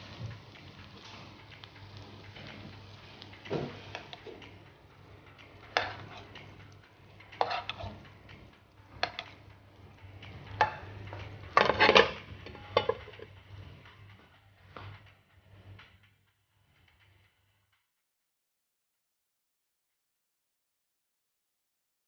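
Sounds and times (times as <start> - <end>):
fish frying in butter: 0.0 - 4.9, 5.5 - 13.3
fork clinking on frying pan: 11.6 - 13.2
glass lid clattering on pan: 11.6 - 13.3.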